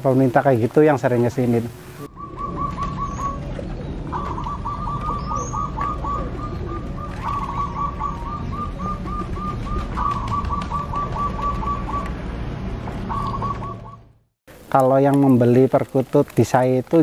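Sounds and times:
doves cooing: 1.4 - 12.3, 13.0 - 16.5
high rising bird chirp: 2.0 - 12.2, 13.0 - 14.2.

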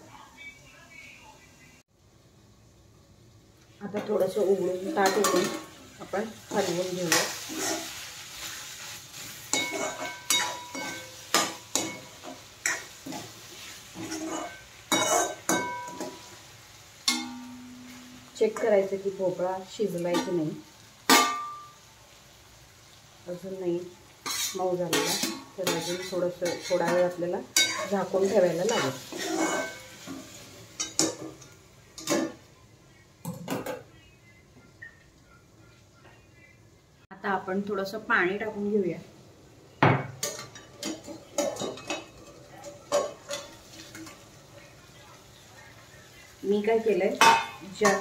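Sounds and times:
steel plate clinking on pot: 9.5 - 12.9, 17.1 - 17.8
steel spoon clinking on pan: 9.5 - 13.2, 14.0 - 16.3, 17.0 - 18.2, 21.1 - 21.8, 27.6 - 28.0.

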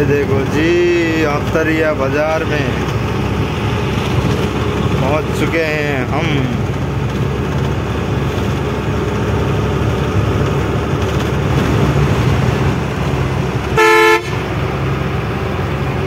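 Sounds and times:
truck engine and road noise: 0.0 - 16.0
vehicle horn blast: 13.7 - 14.5.

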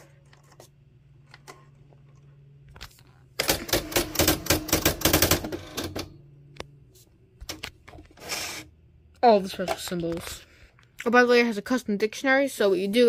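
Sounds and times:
low steady hum: 0.0 - 13.0
typewriter print wheel strikes: 3.4 - 6.2.

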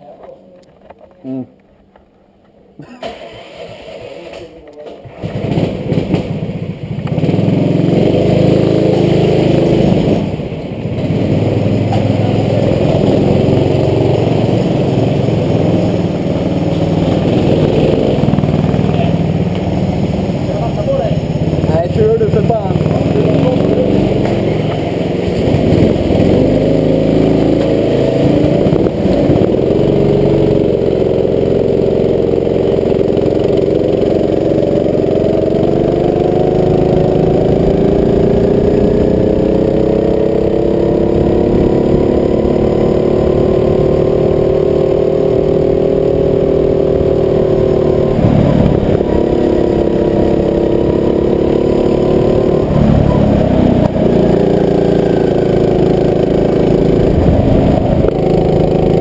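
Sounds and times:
go-kart engine revving: 3.0 - 59.0.

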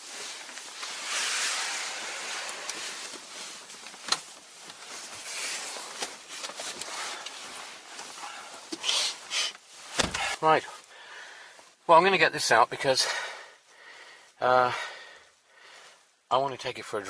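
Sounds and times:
clothing rustling: 0.0 - 11.8
person climbing into car seat: 9.9 - 10.4.

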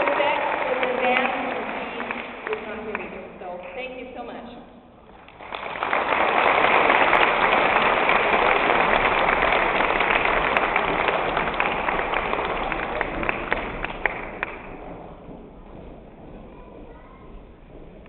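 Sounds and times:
audience applauding: 0.0 - 3.4, 5.1 - 15.0.

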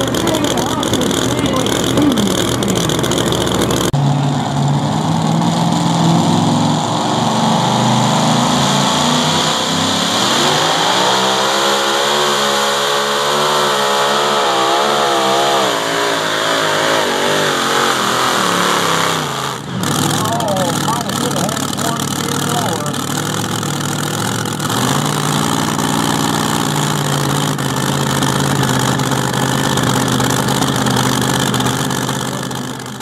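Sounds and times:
other truck engine: 0.0 - 33.0
supercharged engine at full throttle: 0.0 - 33.0.

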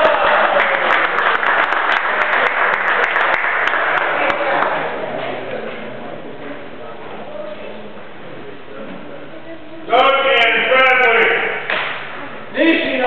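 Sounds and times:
spectators applauding: 0.0 - 5.0.

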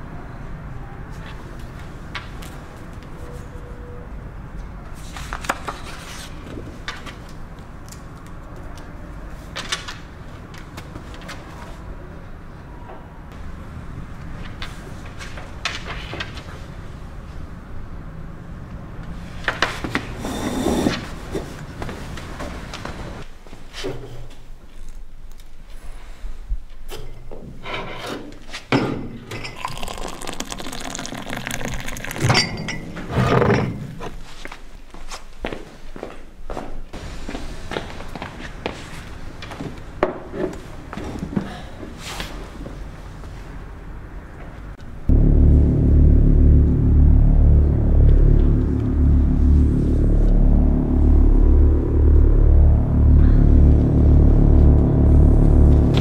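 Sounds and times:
hot water pouring into mug: 29.5 - 32.7
low room hum: 45.0 - 56.0.

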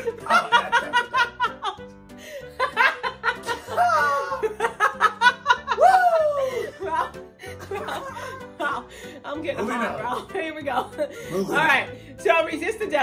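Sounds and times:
woman laughing hard: 0.0 - 1.8, 2.6 - 8.6
background music: 0.0 - 13.0.

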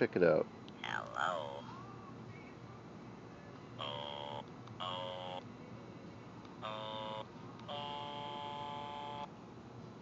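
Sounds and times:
toy singing synthetic notes: 0.8 - 1.7, 3.8 - 5.4, 6.6 - 9.3.

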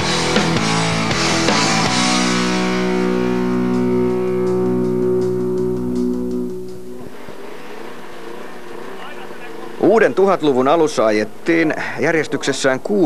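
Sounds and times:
rock music with electric guitar: 0.0 - 7.4.

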